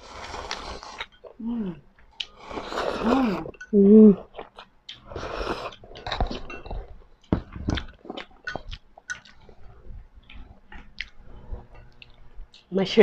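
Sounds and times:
noodle slurp: 0:00.0 - 0:01.1, 0:02.2 - 0:03.6.

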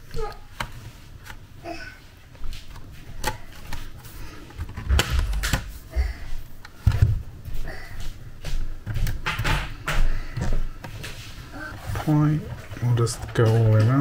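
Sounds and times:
low handling thuds: 0:04.8 - 0:06.2.

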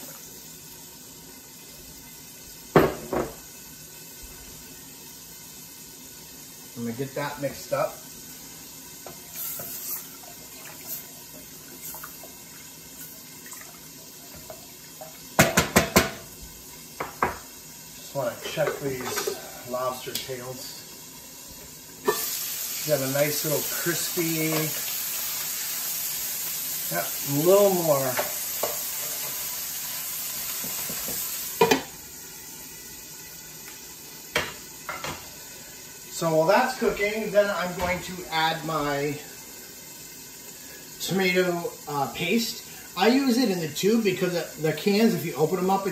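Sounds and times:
lobster sizzling in butter: 0:00.0 - 0:45.9
spoon knocking on pot: 0:15.4 - 0:16.2.

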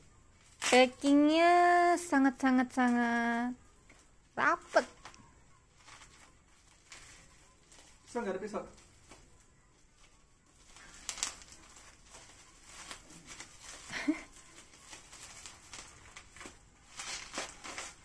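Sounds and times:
plastic packaging crinkling and tearing: 0:04.7 - 0:18.0.

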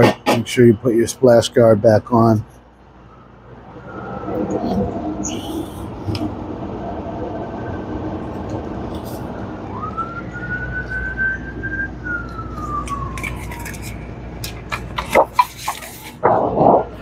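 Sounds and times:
machine hum: 0:02.4 - 0:17.0
rising and falling tone: 0:03.0 - 0:15.3.

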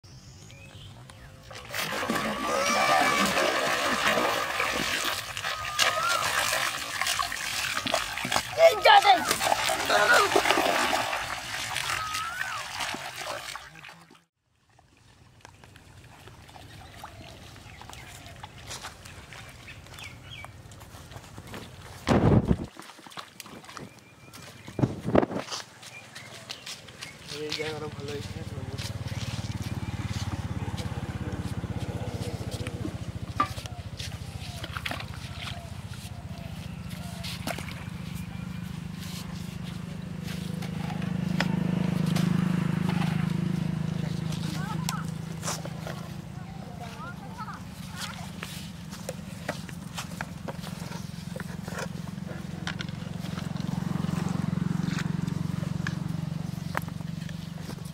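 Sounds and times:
small engine running: 0:27.4 - 0:57.9.

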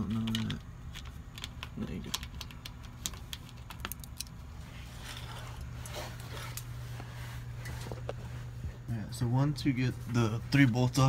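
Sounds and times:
steady low hum: 0:00.0 - 0:11.0
rustling scraping: 0:04.5 - 0:08.8.

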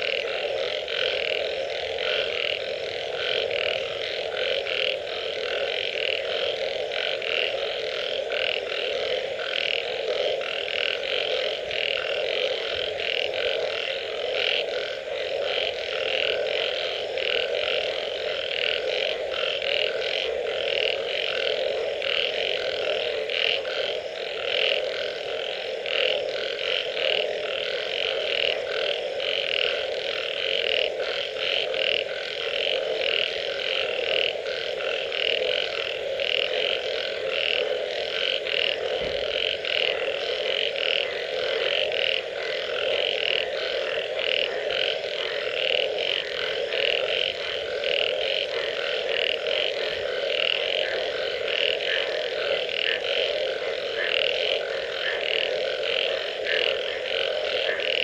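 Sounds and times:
chorus of frogs croaking: 0:00.0 - 0:58.0.

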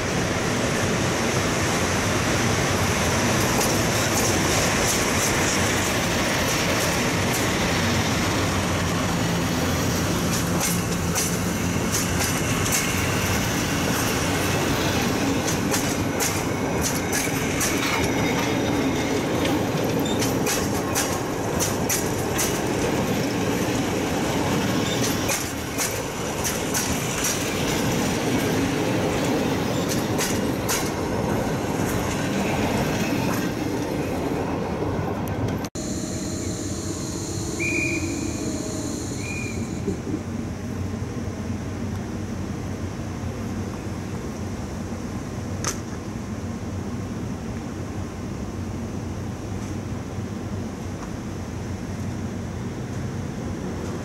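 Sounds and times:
train wheels rumbling on rails: 0:00.0 - 0:35.7, 0:37.6 - 0:54.0
high squeal of train wheels: 0:08.9 - 0:22.6, 0:24.5 - 0:28.5, 0:29.4 - 0:31.0, 0:35.8 - 0:40.0
bogies clicking over rail joints: 0:19.4 - 0:22.7.

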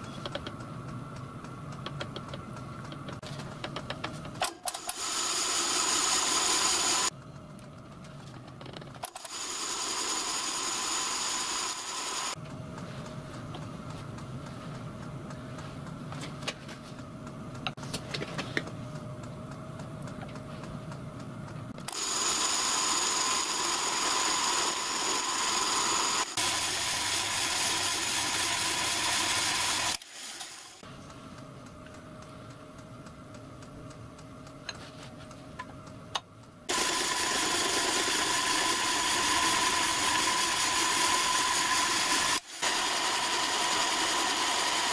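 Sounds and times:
milling machine running: 0:21.9 - 0:30.0, 0:36.7 - 0:44.9.

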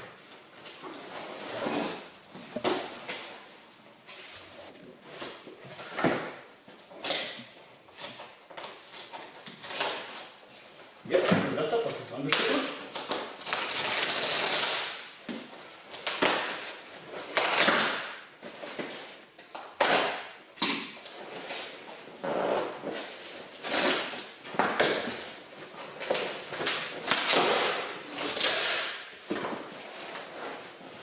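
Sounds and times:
packing tape ripping: 0:08.0 - 0:10.4, 0:12.3 - 0:15.1, 0:15.9 - 0:18.9, 0:23.0 - 0:25.2, 0:26.1 - 0:29.1
cardboard tearing: 0:12.9 - 0:15.0, 0:21.3 - 0:25.1.

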